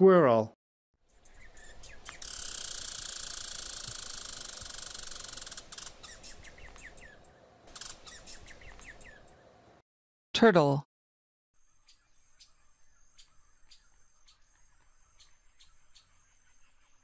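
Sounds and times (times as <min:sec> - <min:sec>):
squirrel chirps and clicks: 0:01.1 - 0:09.4
squirrel trilling: 0:01.1 - 0:09.4.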